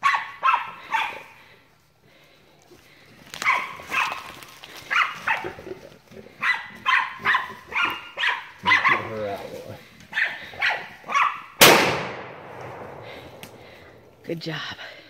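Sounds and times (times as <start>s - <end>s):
dog barking: 0.0s - 1.4s, 3.4s - 5.7s, 6.4s - 9.4s, 10.1s - 11.6s.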